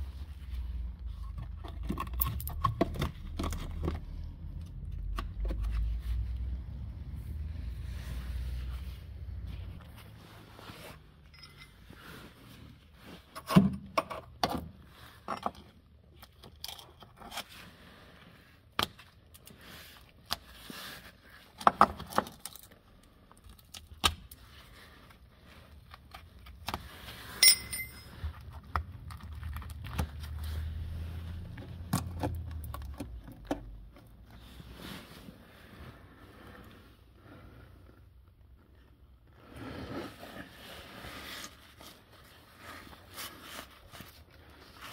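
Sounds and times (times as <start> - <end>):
metallic clinks and scrapes: 11.2 - 12.5, 27.4 - 28.6.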